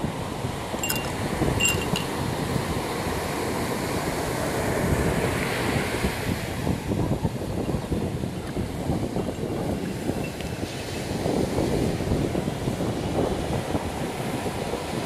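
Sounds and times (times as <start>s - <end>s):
wind buffeting microphone: 0.0s - 15.0s
glass clinking: 0.8s - 2.2s.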